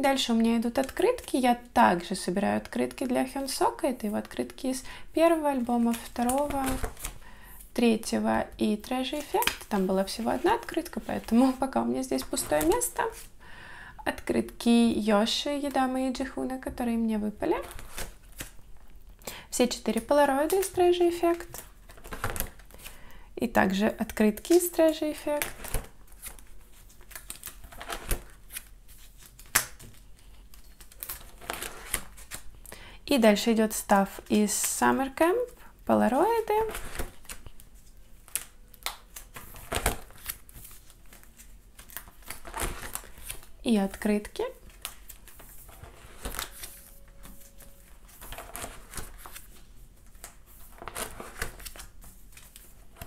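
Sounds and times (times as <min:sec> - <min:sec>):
plastic sleeves rustling: 0:02.1 - 0:13.4, 0:17.2 - 0:53.0
plastic sleeve rustling: 0:36.2 - 0:53.0.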